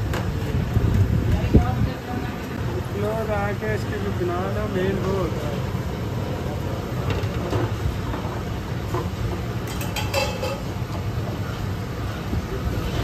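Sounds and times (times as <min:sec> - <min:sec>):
steady low rumble: 0:00.0 - 0:09.6
spoon clinking against steel bowl: 0:09.7 - 0:10.7.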